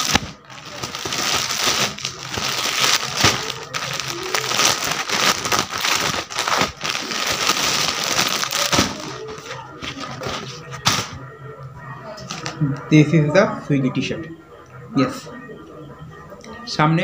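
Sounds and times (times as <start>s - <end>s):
plastic packaging crinkling: 0.0s - 11.1s.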